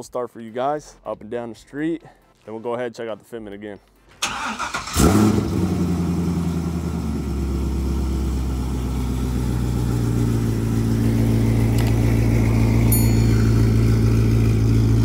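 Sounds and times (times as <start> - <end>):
car engine cold start and idle: 4.2 - 15.0.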